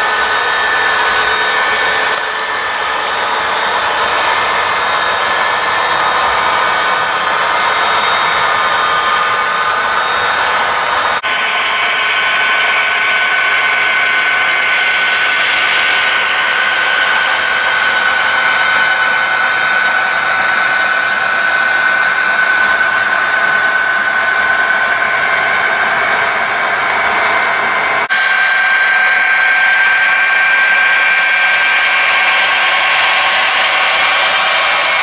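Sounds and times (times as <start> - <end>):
model train wheels whirring: 0.0 - 35.0
thin steady whine: 0.0 - 35.0.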